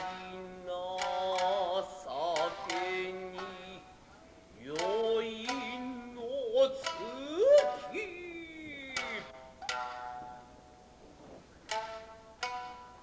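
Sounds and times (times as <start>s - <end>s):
person singing wavering vocal line: 4.6s - 9.8s
shamisen plucks: 4.7s - 10.8s, 11.6s - 13.0s.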